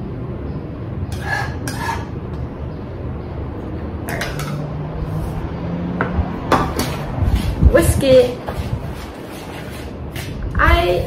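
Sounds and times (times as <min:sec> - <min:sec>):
metal spoon scraping a bowl: 0:01.1 - 0:02.3, 0:04.1 - 0:04.7.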